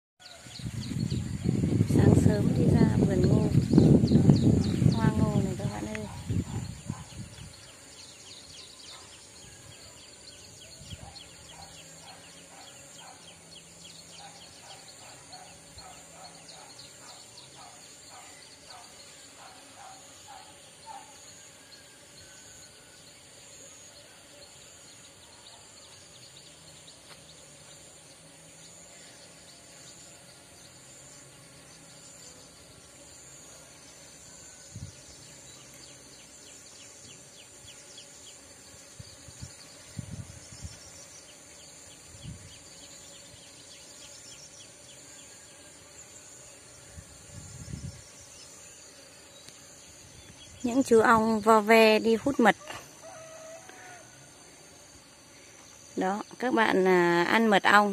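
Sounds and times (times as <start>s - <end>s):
insects chirring: 0.2s - 57.9s.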